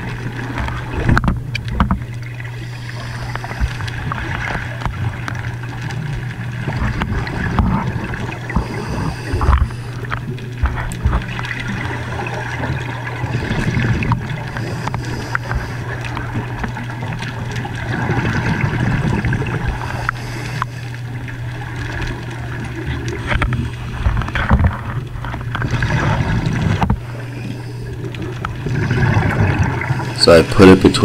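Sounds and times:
low underwater hum: 0.0 - 31.0
water noise: 0.0 - 31.0
small clicks and knocks: 0.5 - 2.2.

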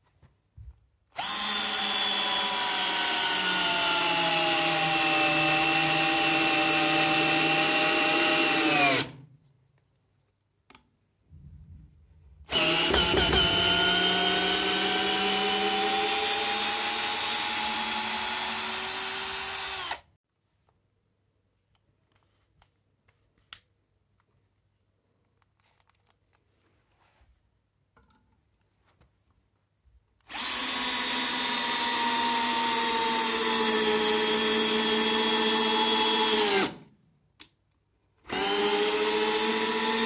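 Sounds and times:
cordless drill motor whine: 1.2 - 9.2, 12.5 - 20.0, 30.3 - 36.8, 38.3 - 40.0
drill clicks: 1.2 - 9.2, 12.5 - 20.1, 30.3 - 36.8, 38.3 - 40.0.

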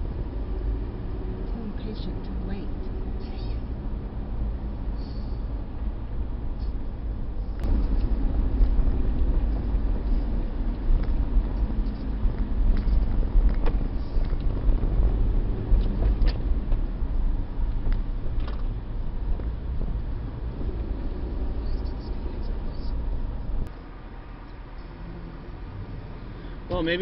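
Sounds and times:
road and engine rumble in cabin: 0.0 - 27.0.

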